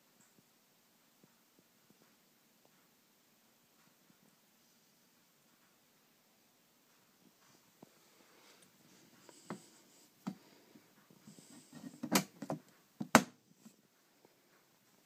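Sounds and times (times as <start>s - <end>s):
handling knocks and rubbing: 6.9s - 13.8s.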